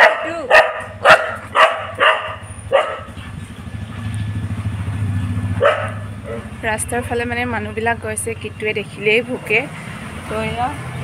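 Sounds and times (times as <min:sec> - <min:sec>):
dog barking: 0:00.0 - 0:03.4, 0:05.5 - 0:06.6.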